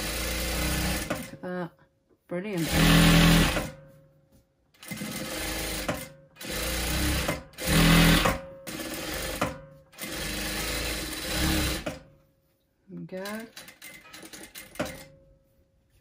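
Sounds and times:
sewing machine stitching fabric: 0.0s - 1.4s, 2.6s - 3.9s, 4.8s - 12.1s, 13.2s - 15.2s.

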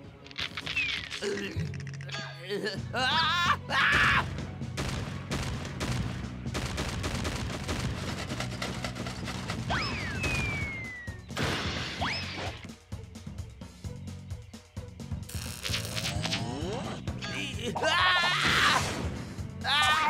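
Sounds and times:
cartoon action music: 0.6s - 12.7s, 15.3s - 20.0s
sharp hits and clattering impacts: 4.2s - 12.7s
falling whistle: 9.7s - 11.2s.

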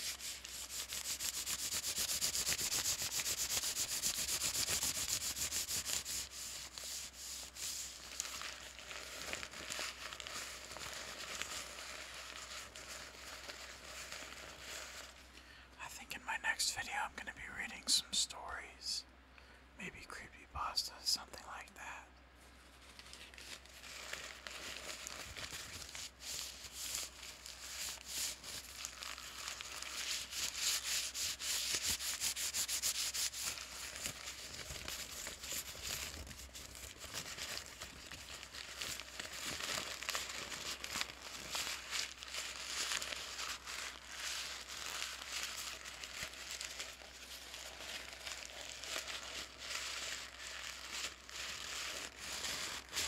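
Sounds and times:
paper bag crinkling: 22.8s - 53.0s.

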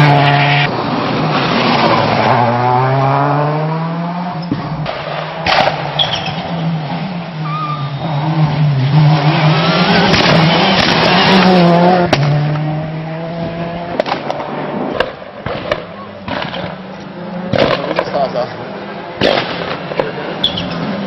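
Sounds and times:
rally car engine revving past: 1.3s - 4.4s, 6.5s - 14.8s.

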